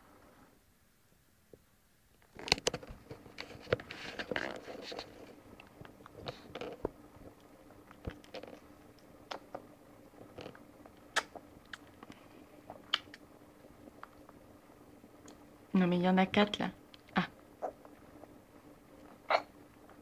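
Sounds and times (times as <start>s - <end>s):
baby mouth clicks and smacks: 9.3s - 9.6s, 11.1s - 12.0s, 12.8s - 13.2s.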